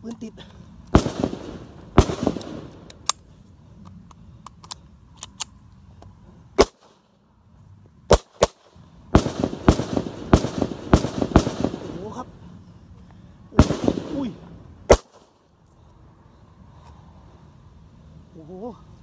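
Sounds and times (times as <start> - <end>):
blank pistol shots: 0.9 - 2.9, 6.6 - 6.9, 8.1 - 12.1, 13.6 - 15.3.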